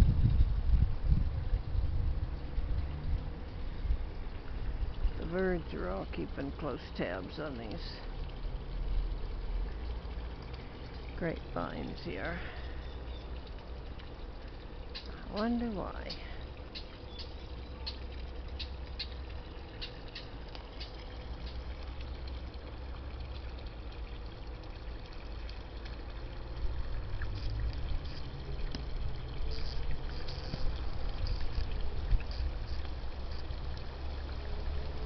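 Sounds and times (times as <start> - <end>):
wind rumbling on microphone: 0.0 - 5.6, 26.6 - 33.7.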